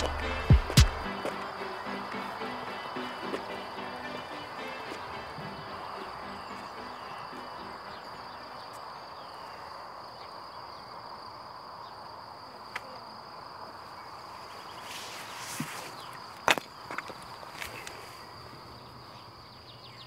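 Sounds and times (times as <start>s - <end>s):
sharp knock: 0.0s - 1.0s
high-pitched trill: 0.0s - 7.8s.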